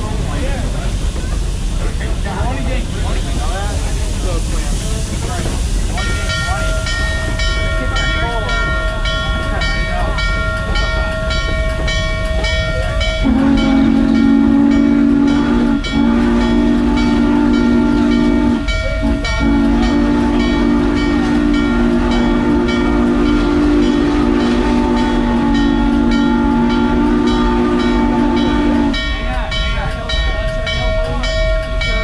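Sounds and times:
moving train beat: 0.0s - 32.0s
steam locomotive chime whistle: 6.0s - 32.0s.

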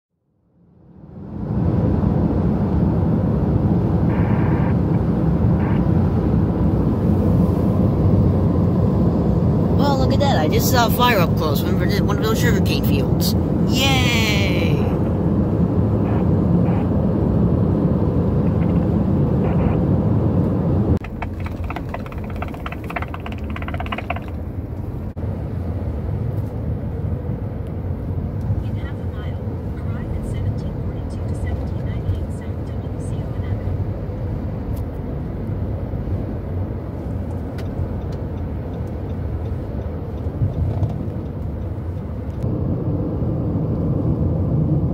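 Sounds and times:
car interior road rumble: 1.0s - 44.9s
radio scanner stuttering buzz: 4.0s - 6.2s, 18.4s - 19.9s.

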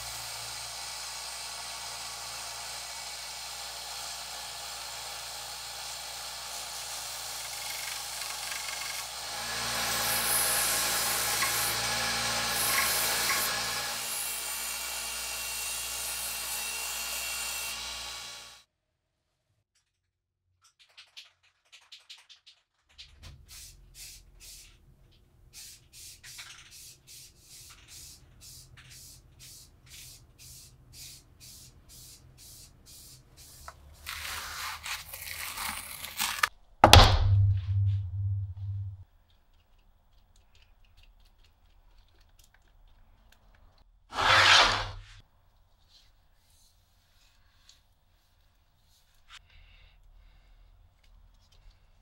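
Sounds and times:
spray paint hissing: 23.4s - 24.8s, 25.5s - 34.0s
loud thunk: 36.8s - 38.9s.

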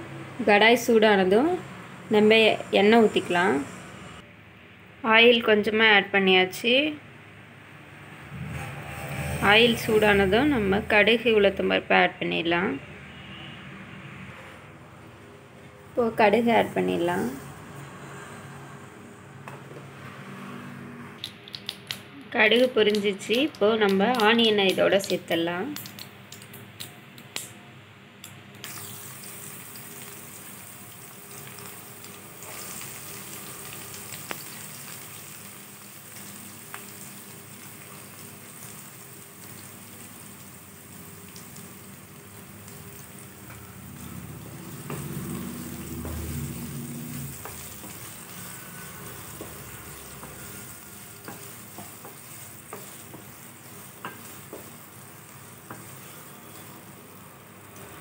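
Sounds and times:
onions sizzling in oil: 28.6s - 58.0s
wooden spatula stirring: 44.7s - 57.9s.

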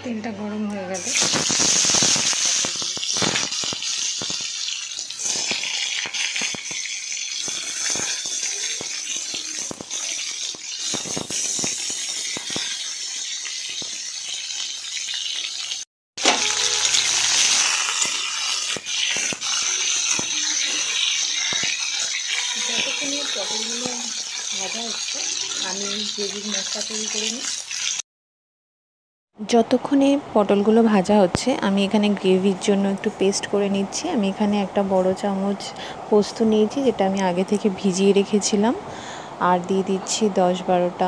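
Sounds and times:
vegetables sizzling in hot oil: 0.9s - 28.0s.

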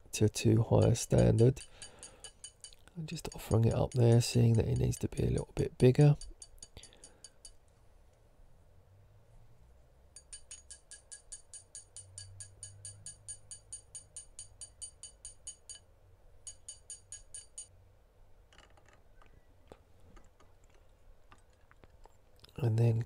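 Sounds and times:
mallet tapping metal ring: 0.7s - 7.6s, 10.1s - 15.9s, 16.5s - 17.7s
faint clicks and scraping: 18.5s - 22.6s.

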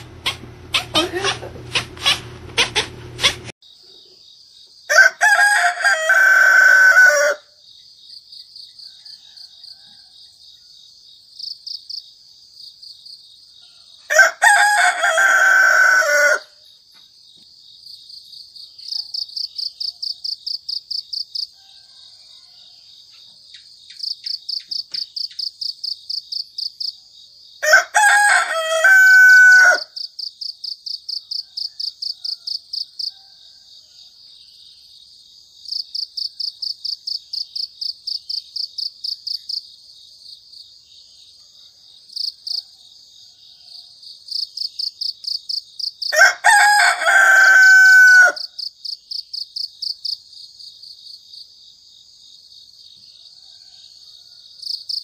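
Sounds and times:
crickets chirping: 3.6s - 55.0s
rooster crowing: 4.9s - 7.6s, 8.8s - 10.7s, 13.6s - 16.6s, 21.4s - 23.1s, 27.6s - 30.1s, 31.1s - 34.5s, 41.7s - 44.1s, 46.0s - 48.7s, 53.1s - 54.8s.

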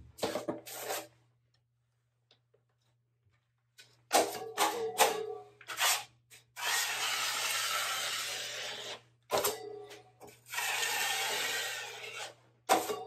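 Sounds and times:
drywall knife scraping: 0.2s - 1.2s, 4.2s - 9.1s, 10.2s - 13.0s.

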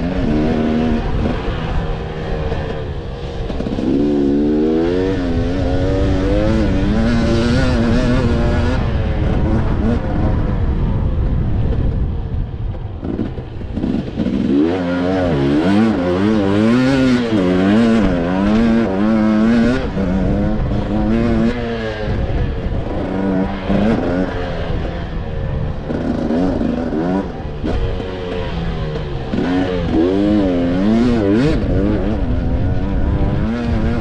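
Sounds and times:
dirt bike engine revving: 0.0s - 11.0s, 13.0s - 34.0s
wind rumble on microphone: 0.0s - 34.0s.

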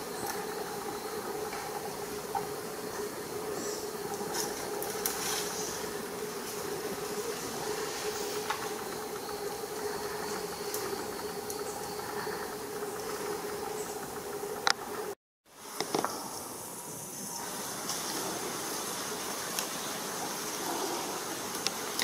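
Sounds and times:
hiss: 0.0s - 14.0s, 15.5s - 22.0s
insect drone: 0.0s - 22.0s
faint clicks: 0.1s - 15.2s, 21.5s - 22.0s.

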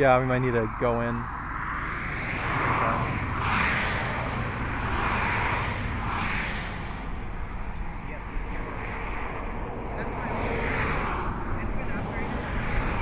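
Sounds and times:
steady low rumble: 0.0s - 13.0s
vehicles passing on highway: 0.0s - 13.0s.

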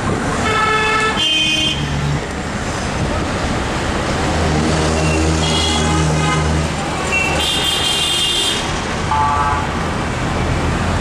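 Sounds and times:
vehicle horn honking: 5.4s - 6.5s, 7.1s - 9.6s.

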